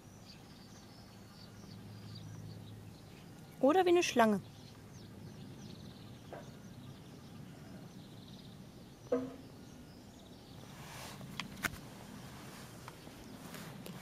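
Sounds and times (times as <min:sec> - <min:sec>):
faint bird chirps: 0:00.0 - 0:11.2
sharp knock: 0:09.1 - 0:09.4.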